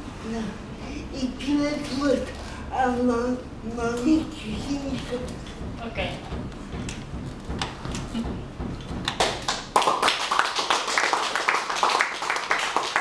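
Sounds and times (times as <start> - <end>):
people applauding: 9.1 - 13.0.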